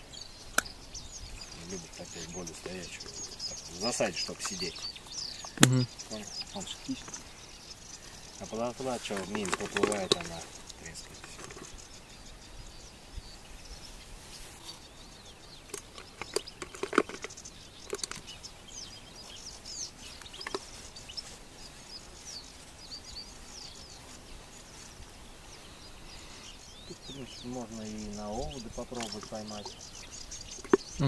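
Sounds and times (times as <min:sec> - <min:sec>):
background hiss: 0:00.0 - 0:31.0
small birds chirping: 0:00.0 - 0:31.0
sharp clicks and knocks: 0:09.1 - 0:11.7, 0:15.7 - 0:18.3.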